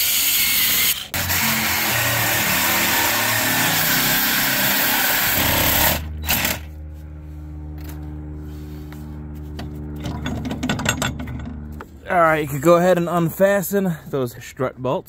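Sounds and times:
reciprocating saw cutting metal: 0.0 - 6.7
steady low hum: 4.4 - 15.0.

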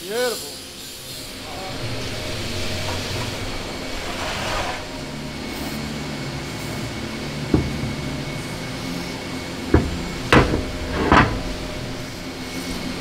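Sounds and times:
aerosol spray hissing: 0.0 - 9.6
low workshop hum: 0.0 - 13.0.

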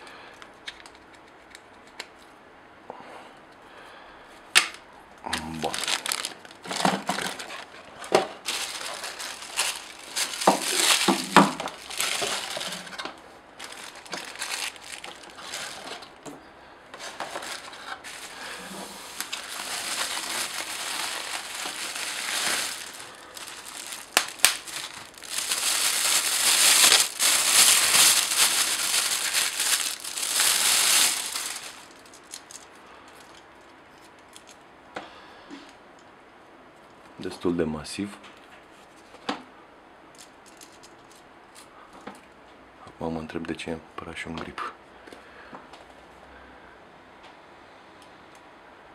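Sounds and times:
bubble wrap crinkling: 5.4 - 16.2, 17.0 - 34.6.

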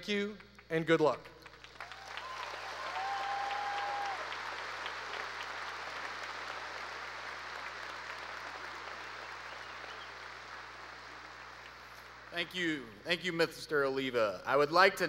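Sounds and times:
large audience applauding: 1.4 - 12.4.

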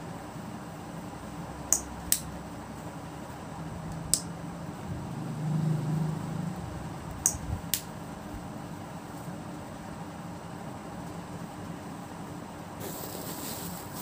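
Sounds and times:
steady hiss: 12.8 - 14.0.

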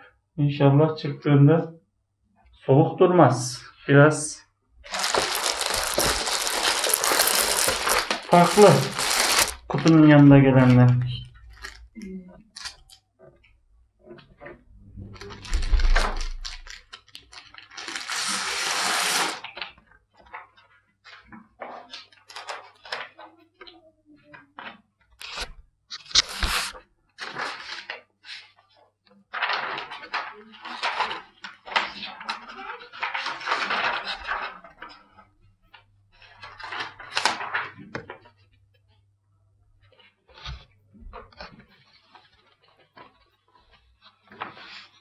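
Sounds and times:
plastic wrapping rustling: 4.8 - 13.0, 15.1 - 19.7, 26.0 - 28.0, 29.3 - 35.0, 36.1 - 38.5.

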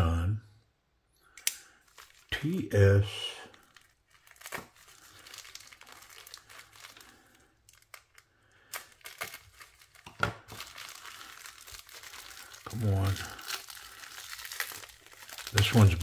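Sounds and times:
bubble wrap crinkling: 1.7 - 16.0
sharp crackles: 3.4 - 16.0.

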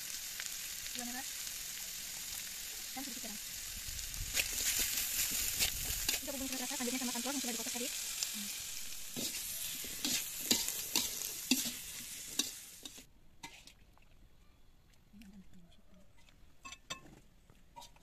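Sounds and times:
stir-fry sizzling in wok: 0.0 - 13.6
spatula scraping and clacking on wok: 4.3 - 7.8, 9.1 - 13.7, 17.8 - 18.0.

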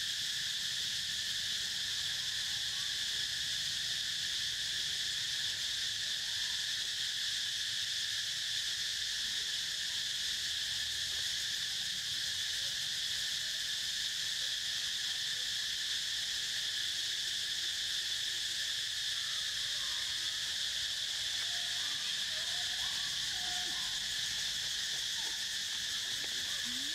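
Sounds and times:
insect chorus drone: 0.0 - 26.9
faint wavering calls: 20.1 - 26.9.

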